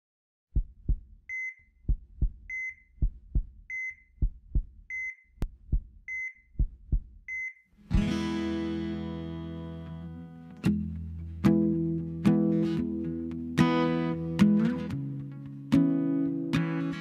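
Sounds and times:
heartbeat thumps: 0:00.5 - 0:07.4
heart monitor beep: 0:01.3 - 0:07.6.

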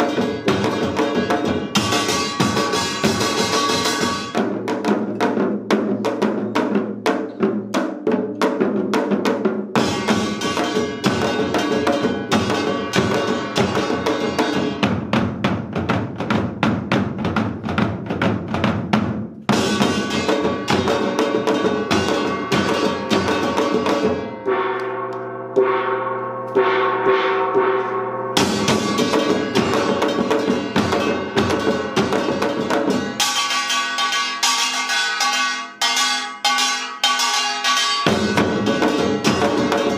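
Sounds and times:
hourglass drums: 0:00.0 - 0:04.5, 0:09.8 - 0:15.2, 0:19.5 - 0:39.9
barrel drums: 0:00.0 - 0:39.9
small gong: 0:09.8 - 0:14.9, 0:19.5 - 0:39.9.

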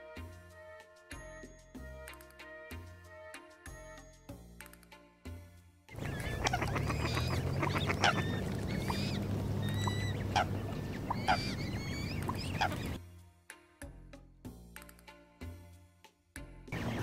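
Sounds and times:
steady low hum: 0:06.0 - 0:13.0
waterfowl honking and chirping: 0:06.0 - 0:13.0, 0:16.8 - 0:17.0.

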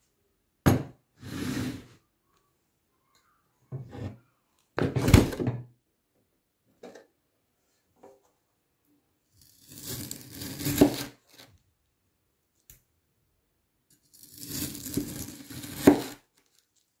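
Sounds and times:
knife cutting through jelly: 0:09.4 - 0:11.6, 0:13.9 - 0:16.3.

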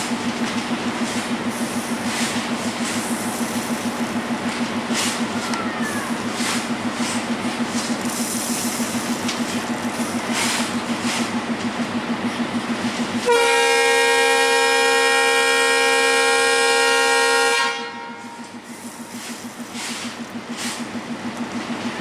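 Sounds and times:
diesel locomotive engine: 0:00.0 - 0:22.0
train rumble: 0:00.0 - 0:22.0
locomotive air horn: 0:13.2 - 0:18.6.

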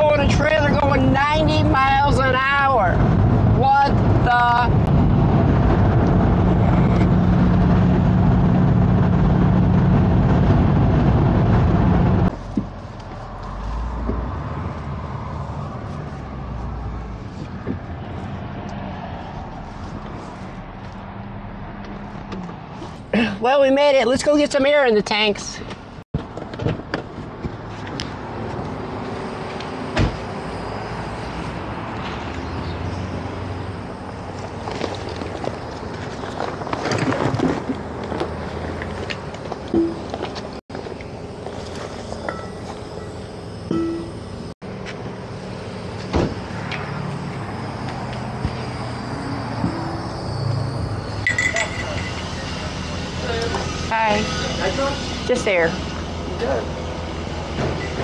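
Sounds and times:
car engine drone: 0:00.0 - 0:58.0
road and wind noise: 0:00.0 - 0:58.0
traffic noise with low hum: 0:00.0 - 0:58.0
sharp thump: 0:30.0 - 0:30.2, 0:46.1 - 0:46.4.

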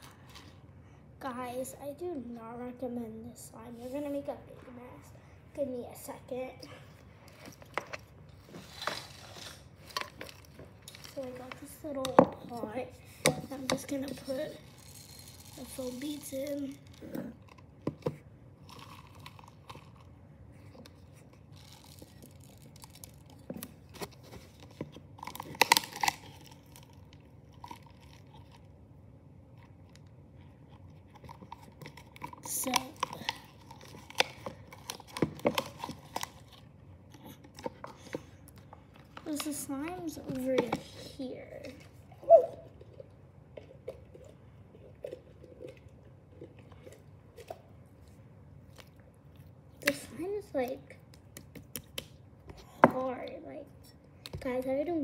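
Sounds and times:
fingers crunching foam beads: 0:21.6 - 0:28.7, 0:31.2 - 0:36.6.

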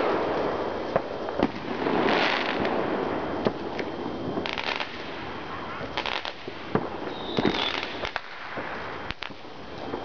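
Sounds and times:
distant firework explosions: 0:00.0 - 0:10.0
firework bangs: 0:00.0 - 0:10.0
firework hissing burst: 0:00.0 - 0:10.0
crackling pops: 0:03.4 - 0:05.2, 0:05.8 - 0:10.0.

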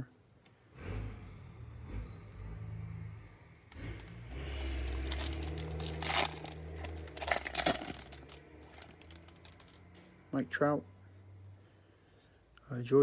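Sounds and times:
foil wrapper tearing and crinkling: 0:03.7 - 0:09.8.

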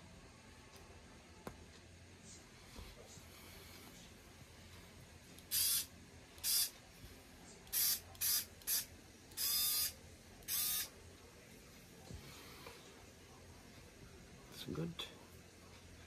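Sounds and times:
cordless screwdriver motor bursts: 0:05.5 - 0:06.7.

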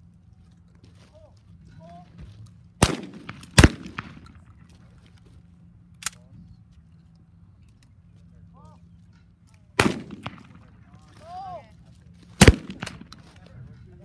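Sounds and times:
shotgun shots with echo: 0:02.8 - 0:04.4, 0:09.8 - 0:10.7, 0:12.4 - 0:13.2.

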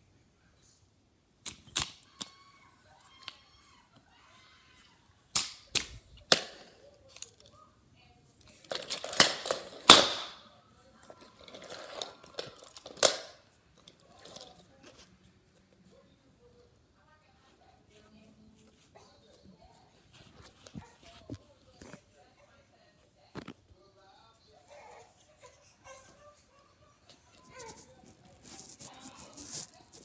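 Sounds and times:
plastic toys clacking: 0:08.4 - 0:10.4, 0:11.0 - 0:14.7.

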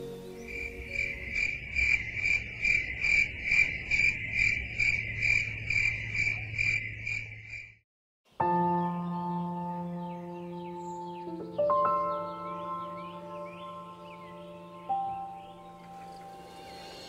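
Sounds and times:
cricket chirping: 0:00.4 - 0:07.8.

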